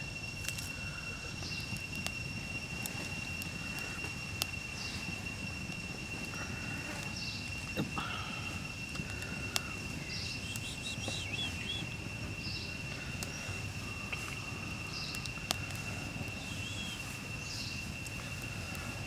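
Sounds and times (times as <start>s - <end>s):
high-pitched insect tone: 0.0s - 19.0s
wood fire popping: 0.0s - 19.0s
bird chirps: 6.4s - 18.4s.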